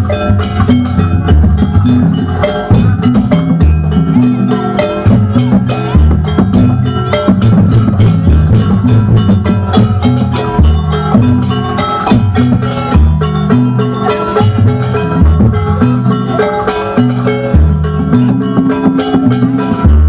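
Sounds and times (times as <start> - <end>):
deep low drum strokes: 0.0 - 20.0
hand drums: 0.0 - 20.0
mallet-struck metal instruments: 0.0 - 20.0.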